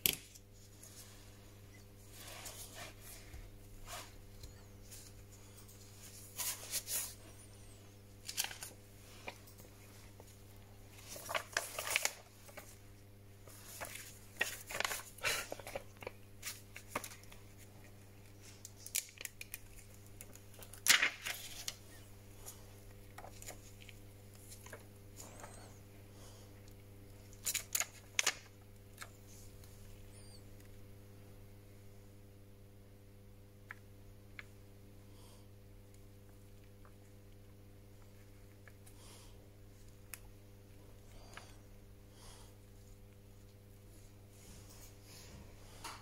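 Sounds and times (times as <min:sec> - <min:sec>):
low electrical hum: 0:00.0 - 0:46.0
plastic film crinkling: 0:08.2 - 0:09.4, 0:10.9 - 0:12.8, 0:13.4 - 0:22.6, 0:27.3 - 0:29.4.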